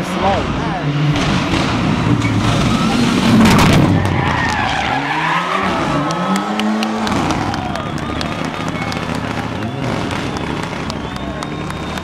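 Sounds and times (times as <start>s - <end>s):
tyres skidding: 0.0s - 12.0s
rally car engine running hard: 5.6s - 12.0s.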